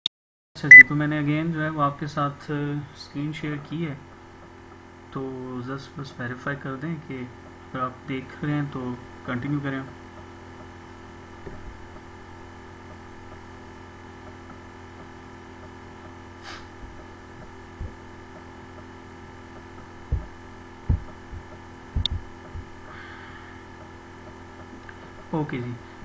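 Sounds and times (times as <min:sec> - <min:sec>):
electrical hum: 0:00.6 - 0:26.0
dull low thumps: 0:11.4 - 0:12.1, 0:16.7 - 0:23.0.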